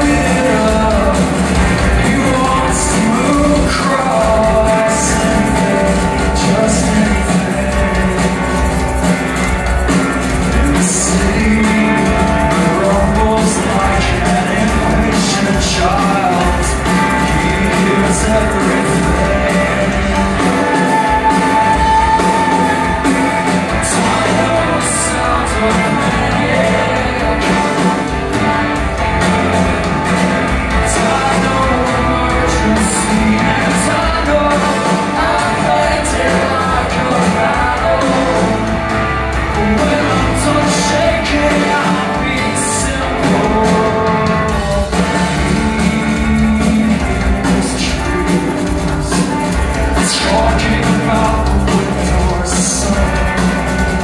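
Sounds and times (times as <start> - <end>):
live rock band playing: 0.0 - 54.0
person singing: 0.0 - 54.0.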